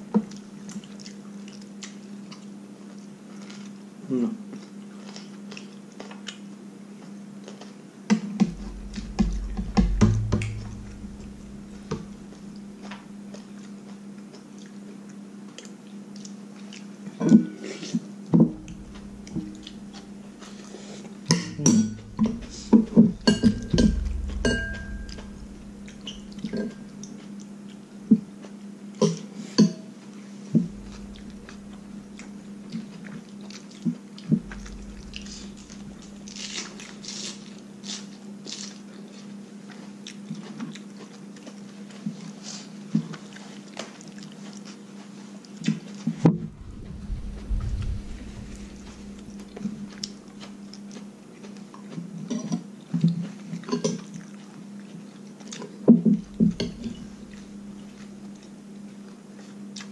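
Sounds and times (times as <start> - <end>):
chewing: 0.2 - 3.8, 4.5 - 7.8, 12.1 - 21.4, 30.6 - 46.0, 49.4 - 59.9
steady low hum: 8.4 - 13.2, 18.2 - 27.2, 30.4 - 32.8, 34.2 - 37.1, 46.3 - 50.4, 56.1 - 58.6.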